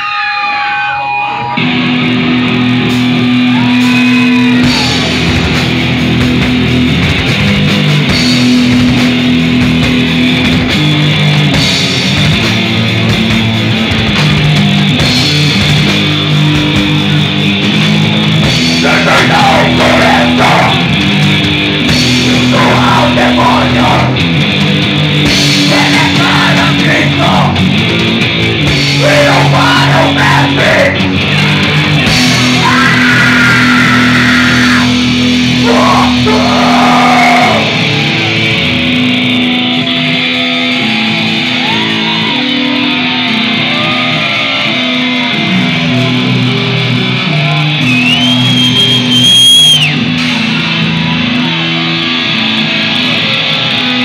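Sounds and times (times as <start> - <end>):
distorted electric guitar: 0.0 - 54.0
bass riffing: 1.5 - 54.0
drums with cymbal wash: 1.7 - 42.4, 45.5 - 54.0
harsh vocals: 18.5 - 24.6, 25.2 - 38.4.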